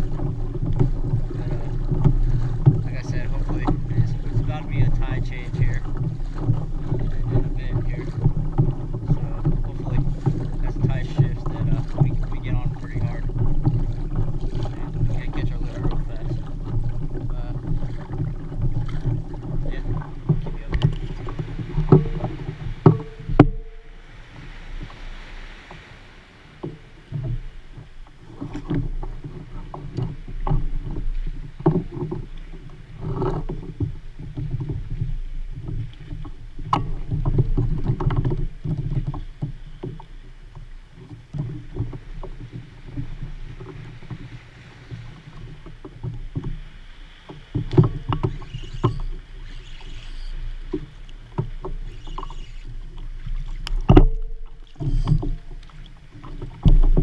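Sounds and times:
water lapping against kayak hull: 0:00.0 - 0:57.0
gear knocks and clicks: 0:53.5 - 0:57.0.

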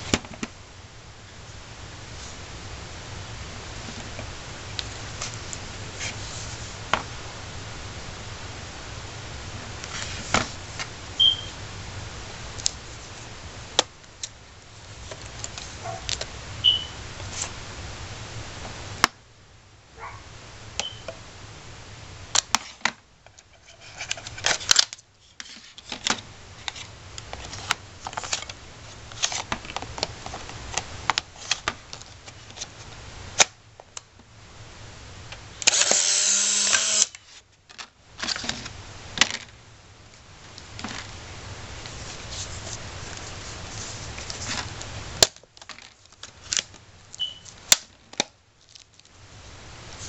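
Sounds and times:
camera motor whirring: 0:35.6 - 0:37.1.

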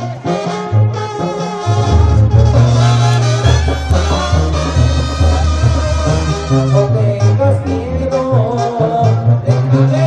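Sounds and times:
loud brass band music: 0:00.0 - 0:07.4.

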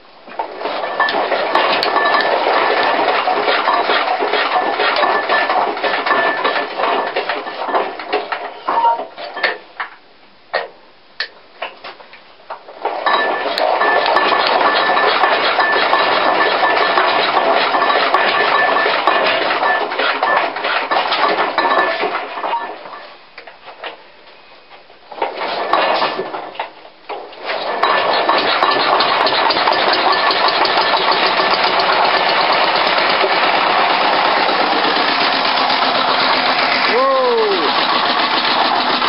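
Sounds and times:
concrete mixer engine running: 0:00.4 - 0:08.8, 0:13.2 - 0:23.0, 0:27.5 - 0:39.0.

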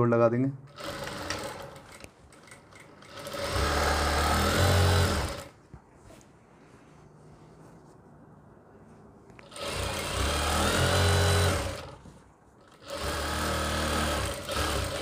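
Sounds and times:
sewing machine stitching: 0:00.7 - 0:05.6, 0:09.4 - 0:12.0, 0:12.6 - 0:15.0.

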